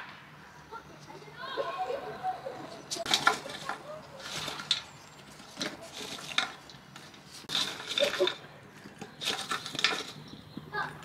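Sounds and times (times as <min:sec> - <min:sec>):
charcoal clattering in metal grill: 0:02.9 - 0:10.3.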